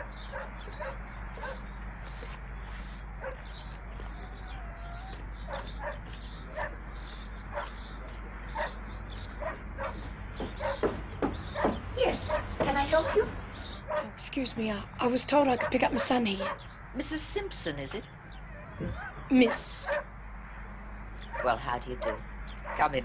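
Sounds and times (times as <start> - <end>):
dog barking: 0.0 - 1.7, 3.2 - 3.5, 4.5 - 6.8, 7.5 - 7.8, 8.5 - 8.8, 9.4 - 10.9, 11.5 - 14.1, 15.6 - 16.7, 18.7 - 20.1, 21.3 - 23.0.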